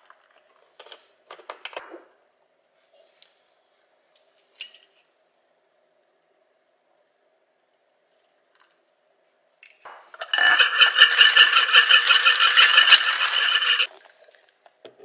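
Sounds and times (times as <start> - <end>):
ice cubes rattling: 10.2 - 13.9.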